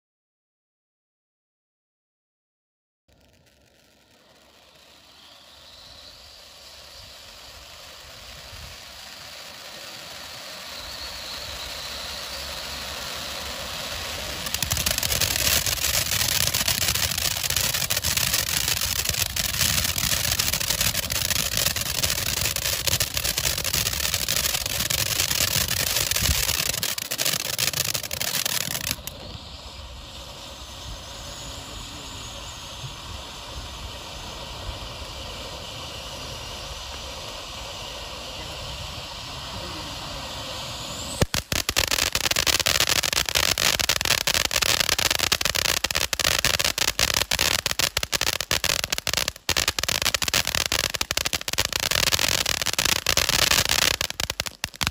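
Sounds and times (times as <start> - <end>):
firework crackling: 3.1 - 54.9
firework hissing: 3.1 - 54.9.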